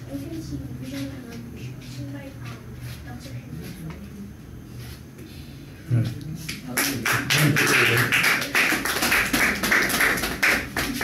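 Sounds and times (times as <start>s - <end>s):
people clapping: 6.5s - 11.0s.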